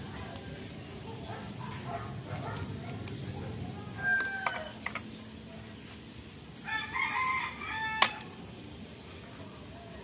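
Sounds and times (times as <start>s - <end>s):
rooster crowing: 4.0s - 4.8s, 6.6s - 8.3s.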